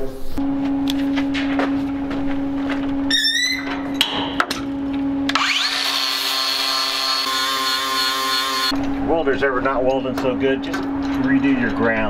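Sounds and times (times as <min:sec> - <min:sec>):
angle grinder on steel: 0:05.3 - 0:08.7.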